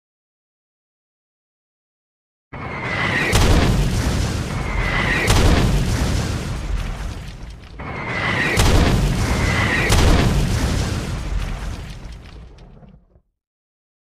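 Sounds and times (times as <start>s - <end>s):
deep rumble with sharp cracks: 2.8s - 13.3s
explosion booms: 3.0s - 13.2s.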